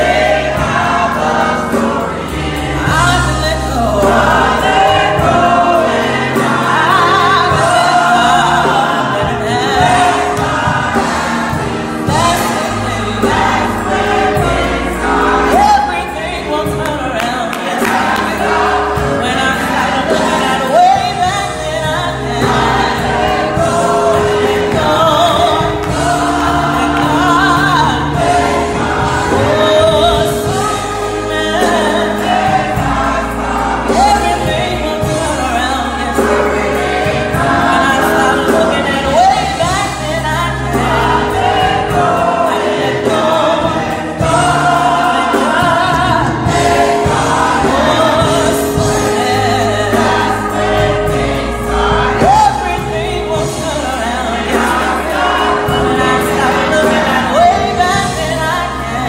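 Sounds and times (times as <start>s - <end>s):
gospel choir singing: 0.0s - 59.0s
woman singing lead vocal: 15.4s - 59.0s.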